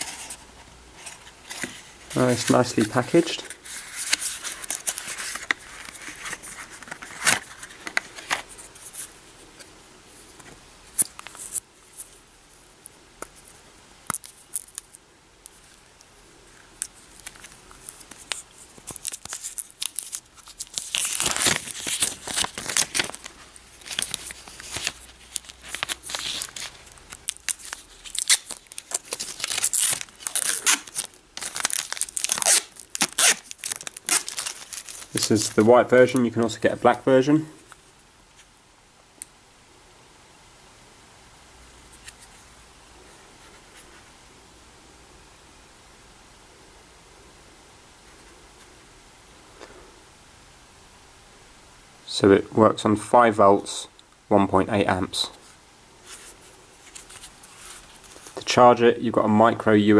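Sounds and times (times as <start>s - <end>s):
crinkly rustling: 0.0s - 12.6s, 13.3s - 38.5s, 55.2s - 59.6s
plastic film peeling: 1.0s - 9.7s, 10.4s - 12.2s, 12.8s - 16.1s, 16.8s - 36.6s, 56.0s - 58.5s.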